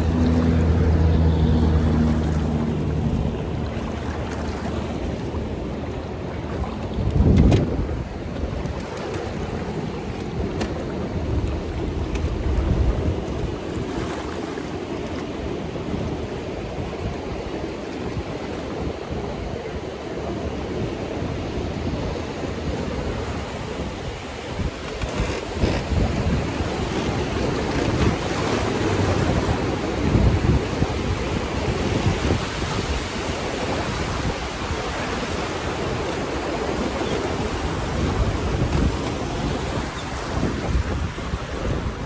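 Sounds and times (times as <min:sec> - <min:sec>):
wind buffeting microphone: 0:00.0 - 0:42.0
rapids rushing: 0:22.3 - 0:42.0.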